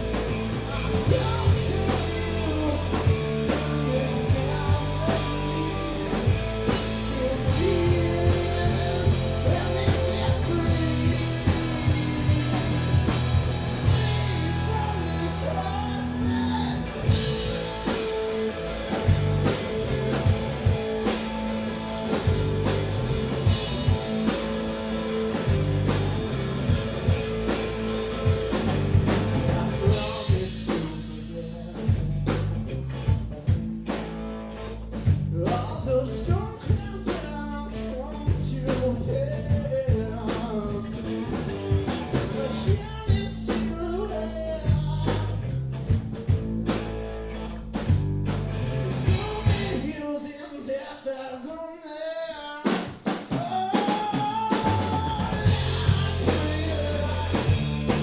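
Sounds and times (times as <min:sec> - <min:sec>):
man singing: 0:00.0 - 0:18.3, 0:28.5 - 0:32.4, 0:35.3 - 0:41.4, 0:42.1 - 0:45.6, 0:49.0 - 0:58.0
live rock band playing: 0:00.0 - 0:50.7, 0:52.6 - 0:58.0.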